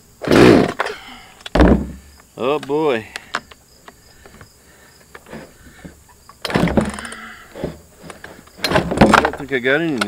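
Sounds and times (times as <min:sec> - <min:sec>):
chainsaw rasping burst: 0:00.2 - 0:00.8.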